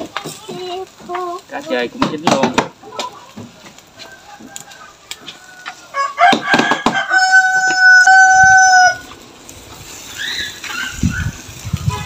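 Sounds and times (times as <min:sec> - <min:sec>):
rooster crowing: 0:03.9 - 0:09.2.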